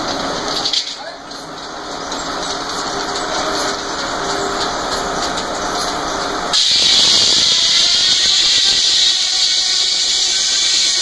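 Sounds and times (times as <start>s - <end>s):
circular saw blade spinning: 6.5s - 11.0s
loud high hiss: 6.5s - 11.0s.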